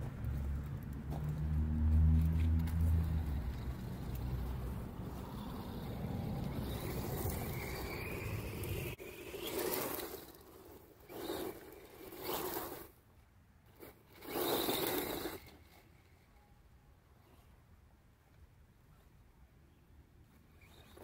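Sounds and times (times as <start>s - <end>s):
toy truck motor and tyres rushing: 0.0s - 13.0s, 13.6s - 16.6s, 20.2s - 21.0s.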